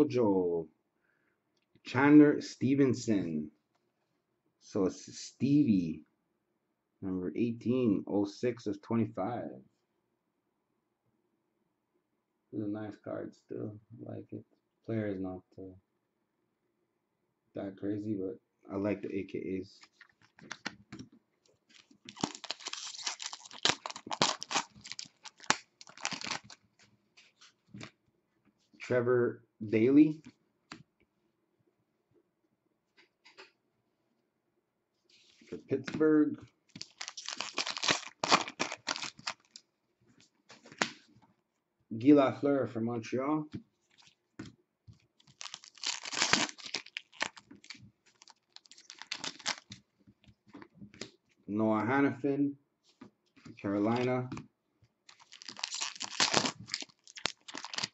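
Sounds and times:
foil pack tearing and crinkling: 0:21.7 - 0:26.6, 0:36.7 - 0:39.6, 0:45.2 - 0:49.6, 0:55.1 - 0:57.9.

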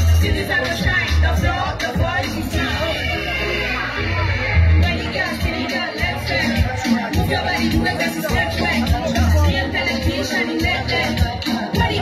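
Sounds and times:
loud live music with bass beat: 0:00.0 - 0:12.0.

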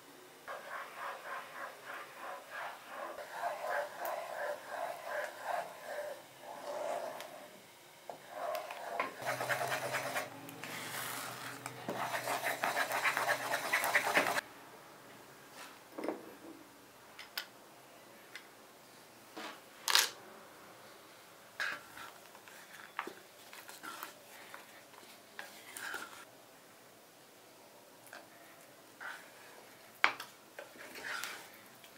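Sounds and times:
spatula scraping saucepan: 0:00.5 - 0:07.4, 0:08.2 - 0:14.4, 0:30.8 - 0:31.5.

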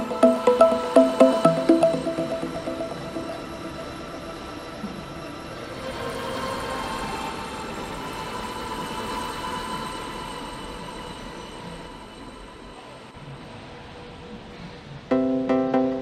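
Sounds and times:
held tones: 0:00.0 - 0:04.4.

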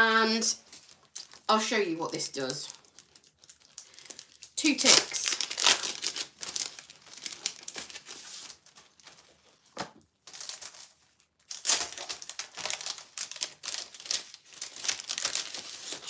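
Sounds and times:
plastic packaging rustling: 0:00.2 - 0:16.0
stencil sheet rustling: 0:06.4 - 0:09.3, 0:11.6 - 0:16.0.

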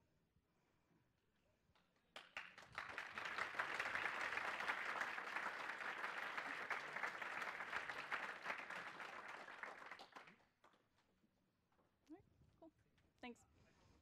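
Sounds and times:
audience applauding: 0:02.2 - 0:10.5.

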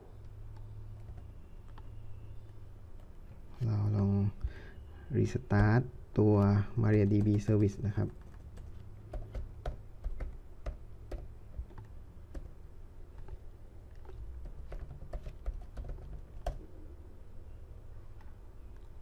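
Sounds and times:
computer keyboard typing: 0:00.2 - 0:03.2, 0:05.5 - 0:16.7.

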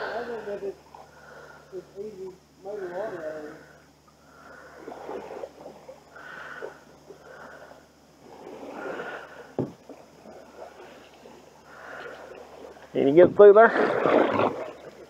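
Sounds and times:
paddle swishing through water: 0:04.5 - 0:07.6, 0:08.2 - 0:12.9, 0:13.6 - 0:15.0.

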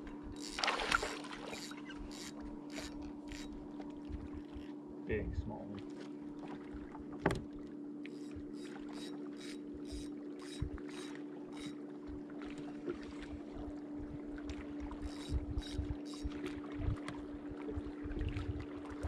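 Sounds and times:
electric motor hum: 0:00.0 - 0:04.7, 0:07.1 - 0:11.9
water against hull: 0:00.0 - 0:19.0.

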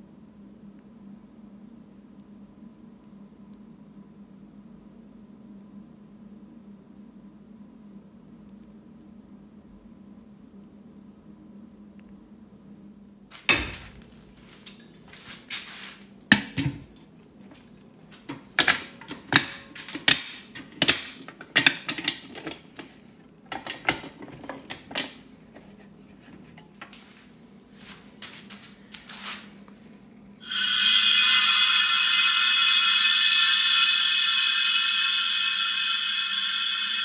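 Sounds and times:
metal lid knocks and clanks: 0:13.5 - 0:14.0, 0:16.3 - 0:17.0, 0:18.3 - 0:25.2
compressed air hissing: 0:30.4 - 0:37.0.

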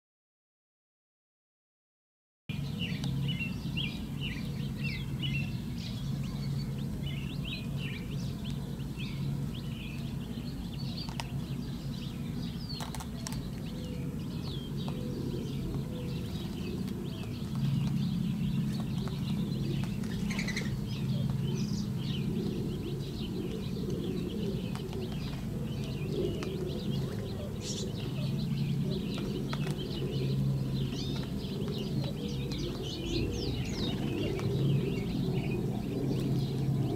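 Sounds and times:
quail chicks peeping: 0:02.8 - 0:36.9.

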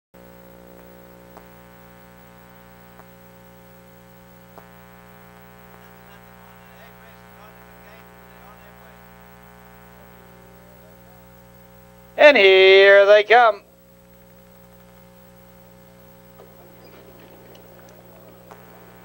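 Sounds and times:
electrical mains hum: 0:00.2 - 0:19.0
faint wavering voice-like sounds: 0:09.9 - 0:11.3
faint clicks: 0:16.3 - 0:19.0.

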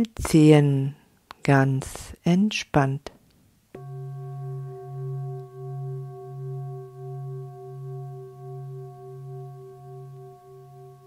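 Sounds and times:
singing bowl ringing: 0:03.8 - 0:11.0.

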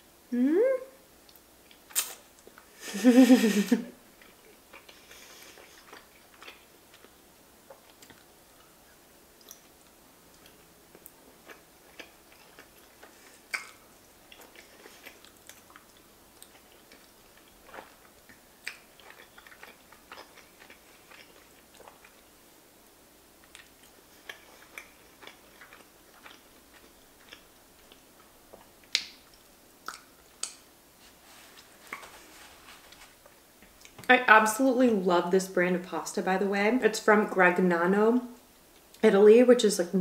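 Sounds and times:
wet chewing mouth clicks: 0:01.3 - 0:02.6, 0:09.4 - 0:09.7, 0:10.3 - 0:22.2, 0:23.4 - 0:30.6.

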